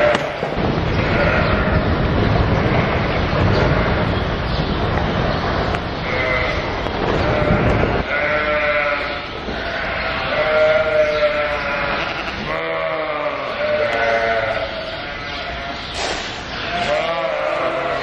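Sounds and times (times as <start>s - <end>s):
sheep bleating: 0.0s - 1.9s, 6.0s - 15.9s, 16.6s - 18.0s
low rumbling noise: 0.0s - 18.0s.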